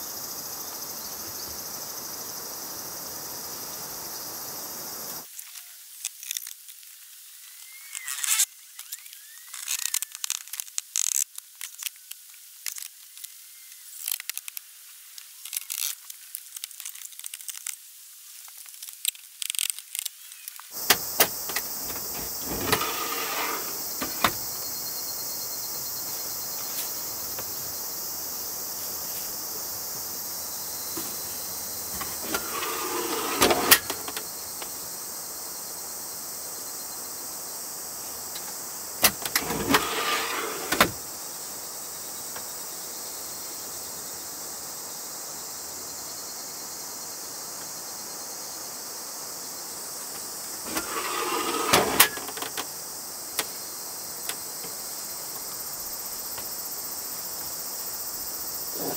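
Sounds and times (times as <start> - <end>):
insect chirring: 0.0 - 58.9
wood sliding and scraping: 20.8 - 24.7, 31.0 - 34.2, 39.0 - 41.0, 50.6 - 52.6.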